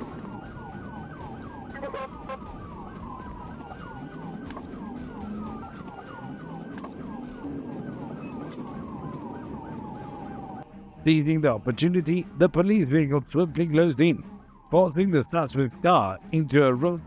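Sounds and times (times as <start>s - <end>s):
police siren yelp and wail: 0.0s - 10.7s
car engine and road noise: 0.0s - 11.0s.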